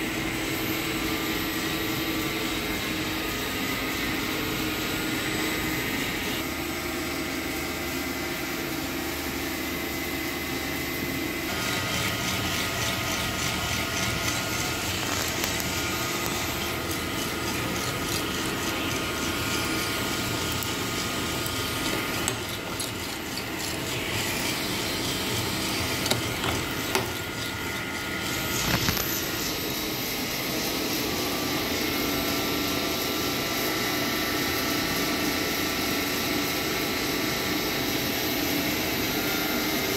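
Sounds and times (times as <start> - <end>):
coffee roaster drum and fan: 0.0 - 39.9
beans tumbling and rasping: 11.5 - 29.5.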